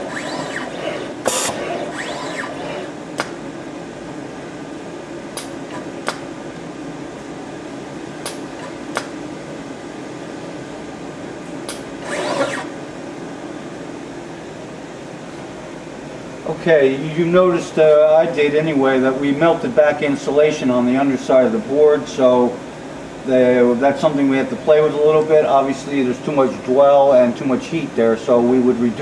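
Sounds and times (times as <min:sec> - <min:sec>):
motor whine: 0:00.0 - 0:03.4, 0:11.7 - 0:12.8
steady motor whir: 0:00.0 - 0:03.4, 0:11.7 - 0:12.8.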